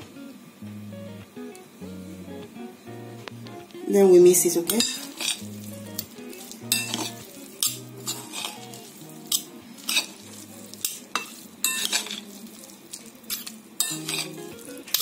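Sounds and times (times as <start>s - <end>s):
metal spoon scraping glass bowl: 4.7s - 5.6s, 6.7s - 12.2s, 13.3s - 15.0s.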